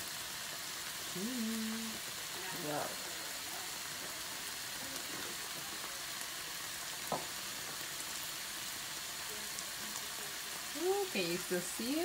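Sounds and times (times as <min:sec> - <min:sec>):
vegetables sizzling in a frying pan: 0:00.0 - 0:12.0.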